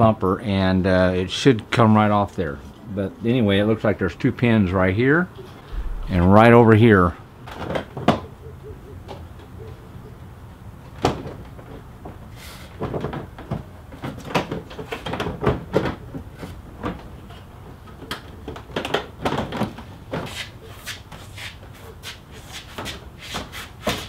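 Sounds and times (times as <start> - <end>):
plastic clacks and knocks: 12.8 - 16.0, 18.0 - 20.2.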